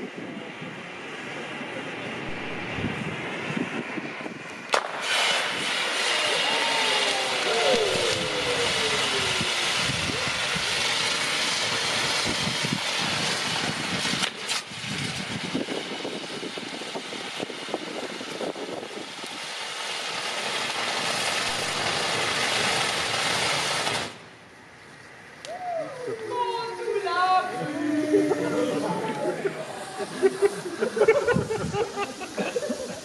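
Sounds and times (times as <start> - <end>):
fireworks crackling: 0.0 - 33.0
fireworks fountains hissing: 0.0 - 33.0
sharp crack: 2.2 - 3.3, 4.4 - 24.4.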